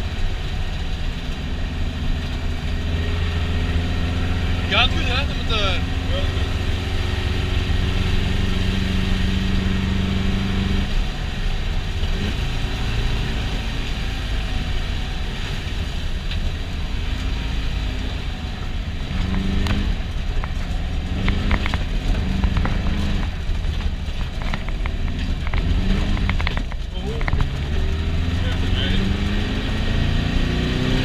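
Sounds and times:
car engine running hard: 0:00.0 - 0:31.0
sharp knocks and clatters: 0:19.2 - 0:27.7.

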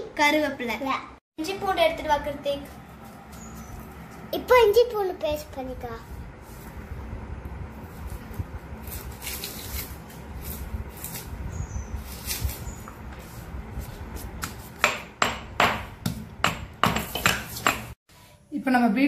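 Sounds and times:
stone pestle pounding: 0:14.4 - 0:18.0.

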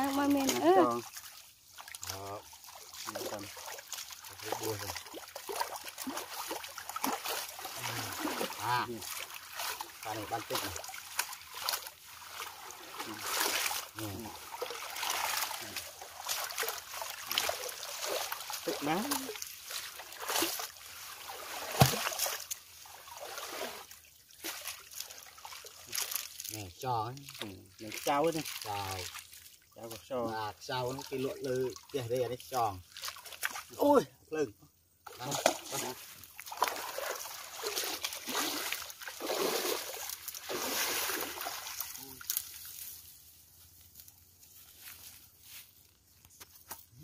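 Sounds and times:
water splashing and trickling: 0:00.0 - 0:47.0
wet net pulled by hand: 0:01.8 - 0:26.6, 0:35.1 - 0:43.0.

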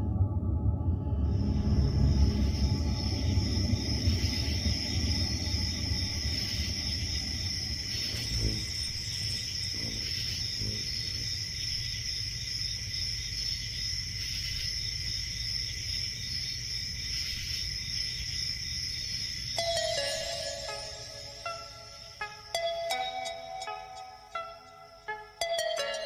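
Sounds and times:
low hum: 0:00.0 - 0:11.3
crickets chirping: 0:00.0 - 0:26.0.

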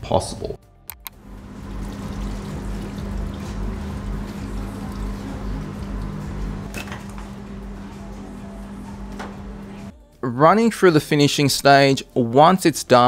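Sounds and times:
background music: 0:00.0 - 0:13.0
broth pouring and dripping: 0:01.2 - 0:06.7.

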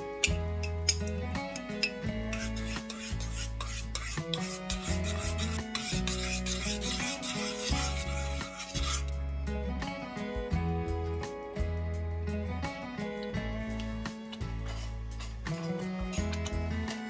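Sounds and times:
background music: 0:00.0 - 0:17.0
spoon scraping saucepan: 0:00.2 - 0:09.1, 0:14.3 - 0:17.0.

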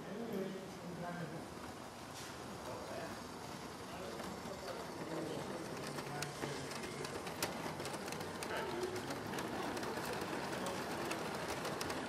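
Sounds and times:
chatter of voices: 0:02.5 - 0:12.0
toy train clicking on track: 0:02.6 - 0:12.0.

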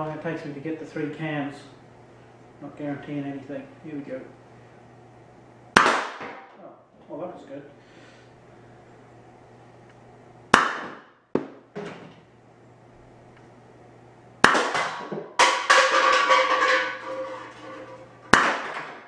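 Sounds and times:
air pistol firing sharp pops: 0:05.8 - 0:06.4, 0:10.5 - 0:11.6, 0:14.4 - 0:15.1
metal can clattering: 0:14.7 - 0:19.0.

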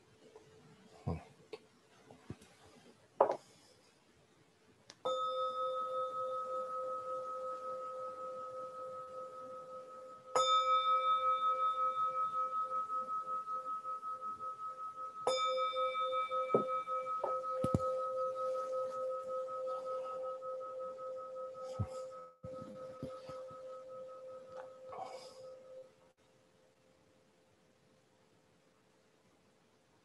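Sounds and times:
singing bowl ringing: 0:05.0 - 0:26.1.

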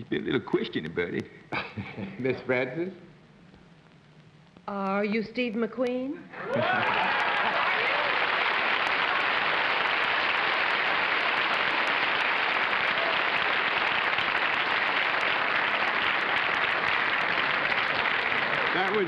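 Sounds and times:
audience applauding: 0:06.4 - 0:19.0.

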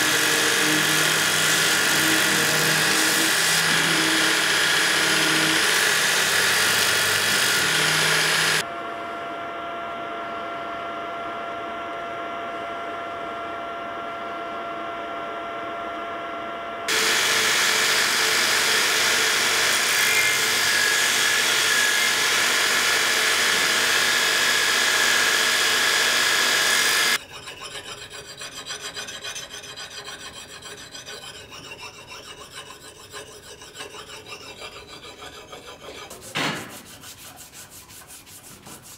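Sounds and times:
belt grinder sanding steel: 0:00.0 - 0:08.6, 0:16.9 - 0:38.9
hand-sanding strokes on steel: 0:00.0 - 0:08.6, 0:16.9 - 0:38.9.

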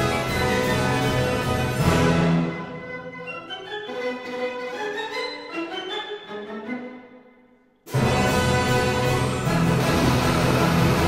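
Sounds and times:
dramatic soundtrack music: 0:07.9 - 0:11.0.

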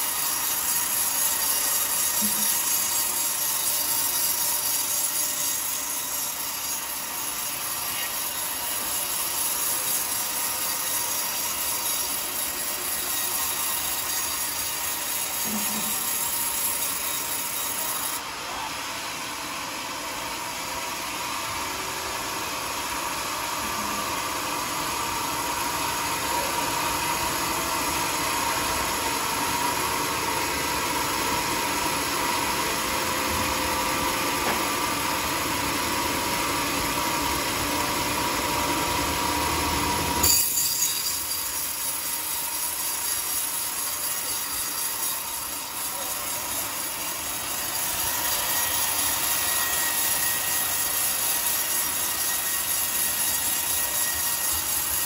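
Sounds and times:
band saw blade cutting log: 0:00.0 - 0:18.2, 0:39.8 - 0:55.0.

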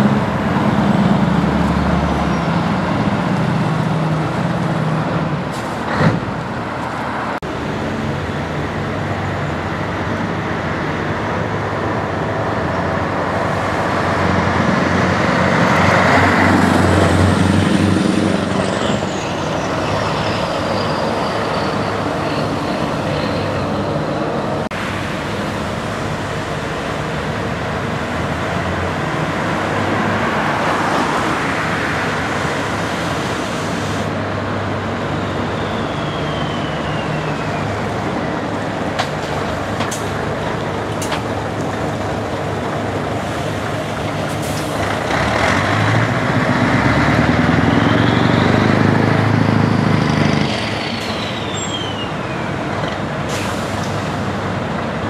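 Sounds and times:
high whistle falling in pitch: 0:35.6 - 0:37.8.

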